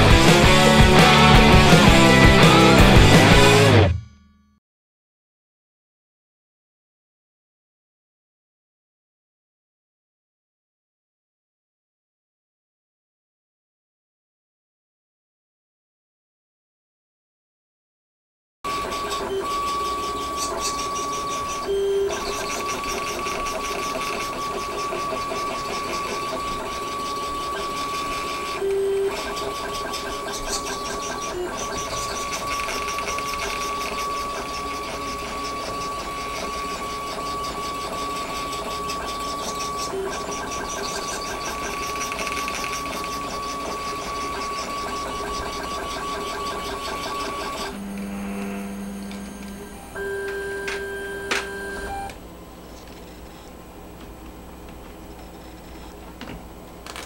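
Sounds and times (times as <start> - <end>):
stepper motors whining: 0.0 - 3.9, 18.7 - 53.7.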